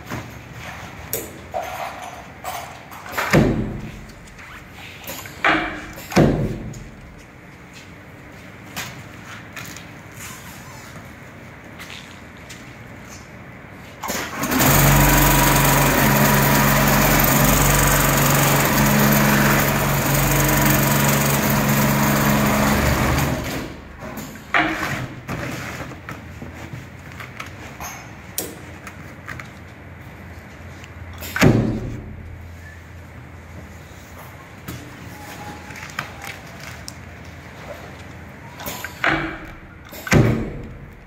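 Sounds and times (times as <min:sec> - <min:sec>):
sewing machine hum: 0:14.2 - 0:23.8.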